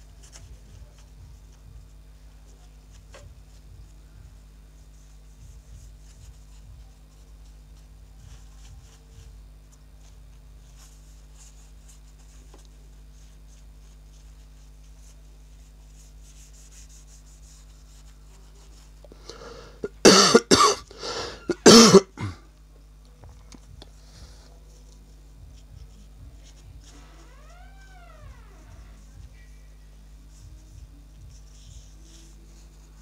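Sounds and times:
tissue rustling on glass: 0.0 - 19.0, 22.9 - 33.0
low steady hum: 0.0 - 33.0
person coughing: 19.8 - 22.4.

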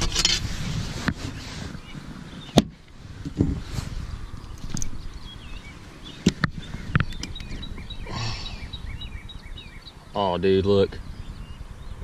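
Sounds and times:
wind rumble on microphone: 0.0 - 12.0
small bird chirping: 4.0 - 12.0.

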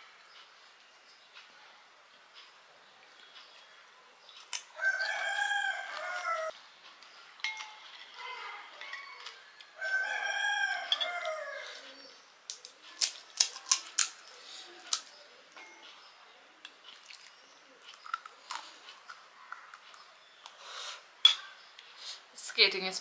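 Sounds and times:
chewing: 2.3 - 10.0, 15.8 - 20.6
crisp shells crunching: 12.5 - 15.1.

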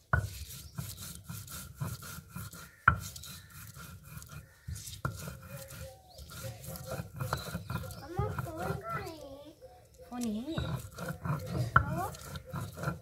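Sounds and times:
stone grinding on stone slab: 0.1 - 9.2, 10.2 - 13.0.

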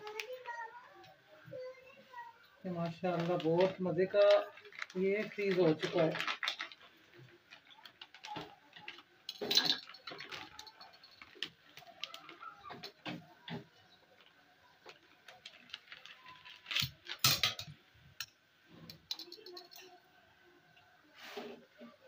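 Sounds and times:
plastic bag crinkling: 2.7 - 17.8.

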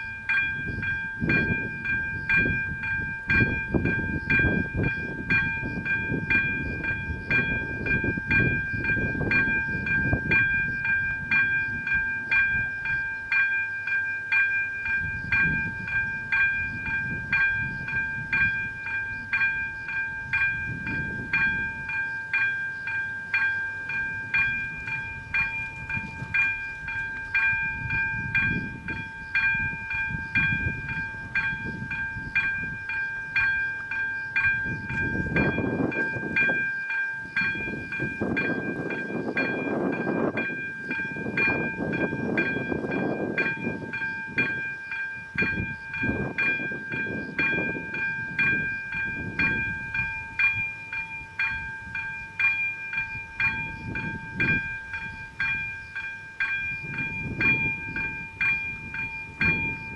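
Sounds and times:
low gusting rumble: 0.0 - 13.0, 14.9 - 21.9, 34.4 - 36.6, 56.6 - 59.9
continuous high tone: 0.0 - 59.9.

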